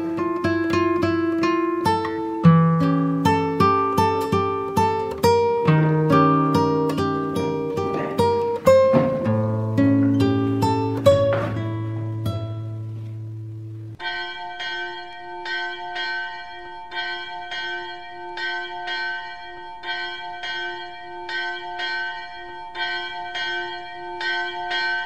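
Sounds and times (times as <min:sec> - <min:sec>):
guitar chord: 0:00.0 - 0:19.2
bell ringing: 0:14.0 - 0:25.0.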